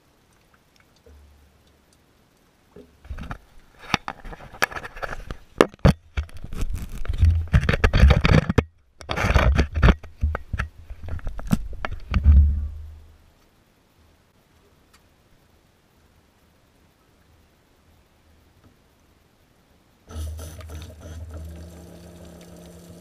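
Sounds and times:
camera handling scraping and knocks: 3.1s - 12.3s.

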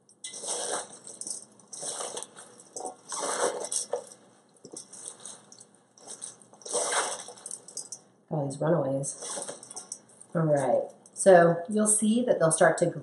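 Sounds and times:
vegetables rustling in a metal bowl: 0.0s - 8.0s, 9.0s - 11.3s.

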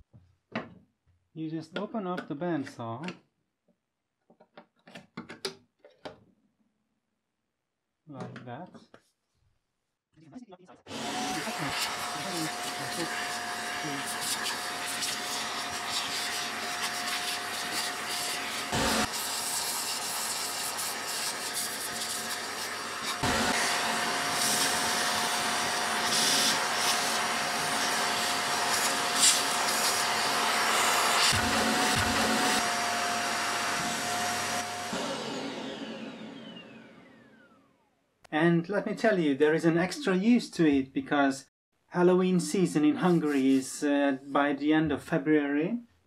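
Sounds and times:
shop vacuum running: 10.9s - 37.9s
vacuum motor winding down: 10.9s - 37.9s.

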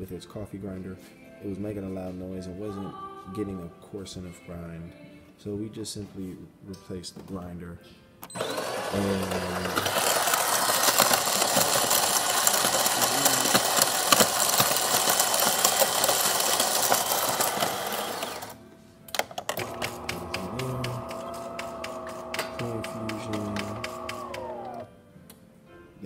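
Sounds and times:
machine humming: 8.3s - 18.6s, 19.5s - 24.9s
coffee grinder grinding beans: 8.4s - 18.6s, 19.4s - 24.9s.

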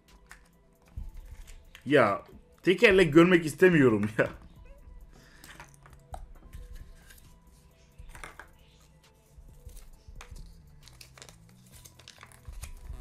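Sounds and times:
soft background music: 0.0s - 13.0s
plastic capsule clicks and rustles: 0.1s - 1.9s, 5.4s - 7.3s, 8.0s - 8.8s, 9.7s - 13.0s
paper leaflet crinkling: 10.4s - 12.9s.

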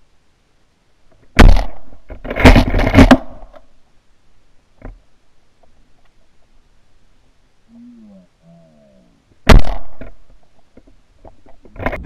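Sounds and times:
shotgun shots: 1.4s - 3.4s, 9.4s - 10.2s.

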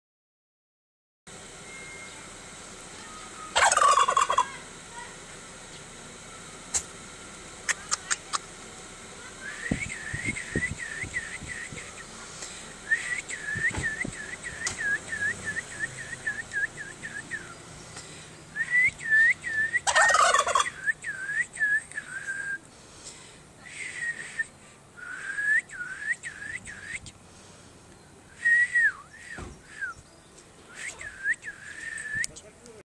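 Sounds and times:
turkey gobbling: 3.0s - 4.7s, 7.6s - 8.5s, 19.0s - 21.4s
short high whistles: 9.4s - 12.1s, 12.8s - 17.6s, 18.6s - 19.8s, 23.7s - 27.1s, 28.3s - 30.0s, 30.7s - 32.4s.

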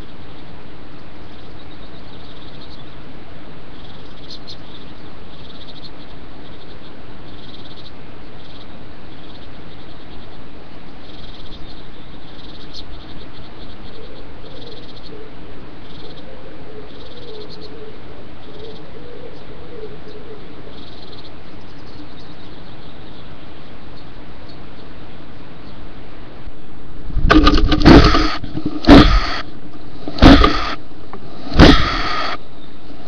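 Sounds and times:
microphone hiss: 0.0s - 33.0s
bird hissing: 27.2s - 32.4s.

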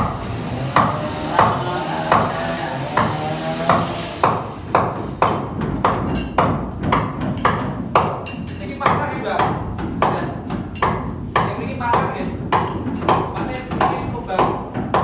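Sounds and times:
hammer blows: 0.0s - 8.2s.

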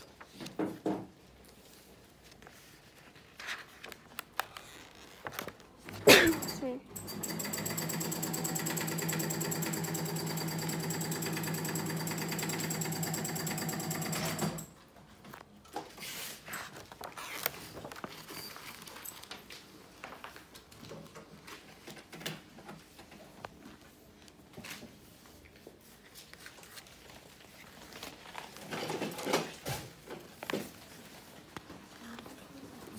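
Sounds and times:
paper rustling: 1.4s - 5.8s, 15.3s - 20.8s, 22.8s - 32.9s
sewing machine running: 6.3s - 14.7s.

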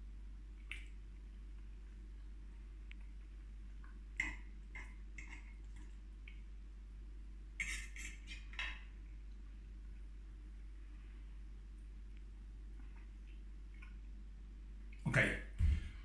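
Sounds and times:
fork scraping a plate: 7.6s - 8.6s.

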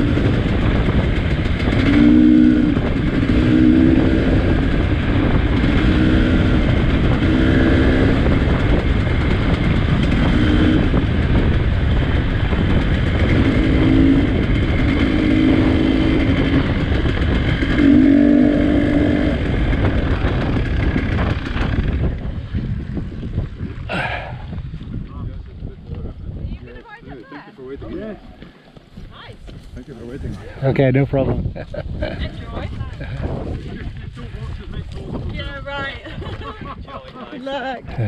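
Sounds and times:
motorcycle engine under throttle: 0.0s - 25.1s
wind noise: 0.0s - 38.0s.

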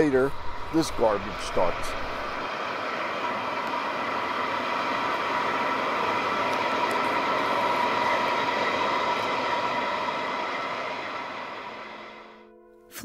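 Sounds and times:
gas flare rushing and whistling: 0.0s - 12.5s.

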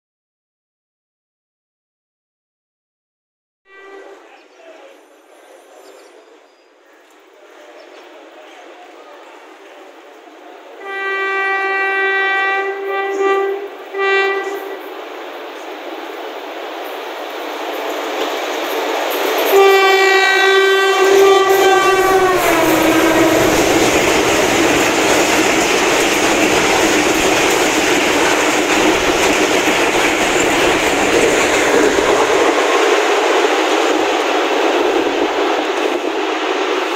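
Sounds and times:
train horn: 3.7s - 4.4s, 10.8s - 15.0s, 19.5s - 32.6s
train coaches rushing by: 3.8s - 36.9s
wheels clacking over rail joints: 17.7s - 35.0s.

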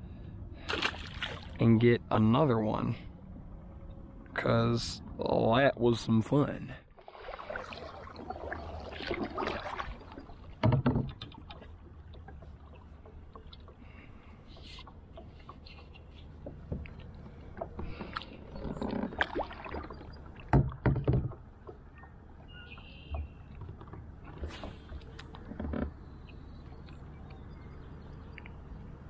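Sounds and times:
paddle splashing in water: 0.7s - 1.6s, 7.0s - 20.9s.

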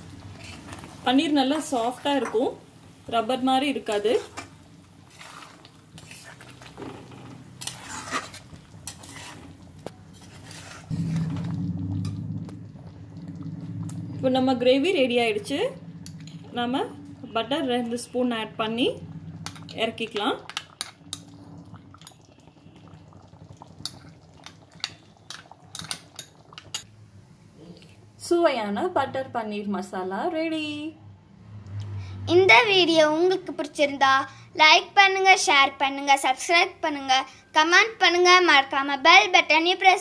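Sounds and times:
gravy simmering: 0.0s - 26.9s
ladle scraping a pan: 0.3s - 0.9s, 3.9s - 12.2s
steady low rumble: 10.9s - 22.1s.

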